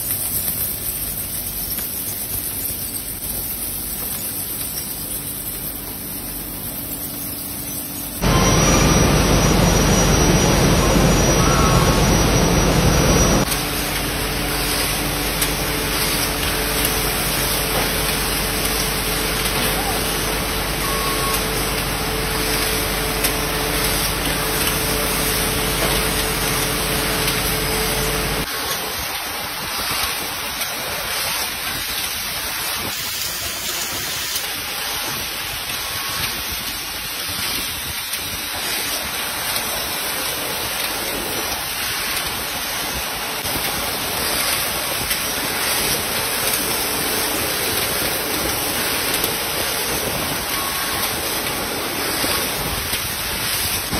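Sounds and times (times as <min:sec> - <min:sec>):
thin hiss: 0:00.0 - 0:09.0
furnace loud low rumble: 0:03.1 - 0:29.0.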